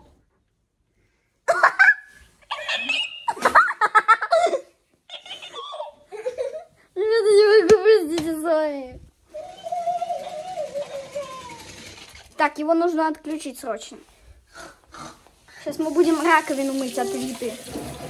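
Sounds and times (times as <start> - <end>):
girl laughing: 1.5 - 8.1.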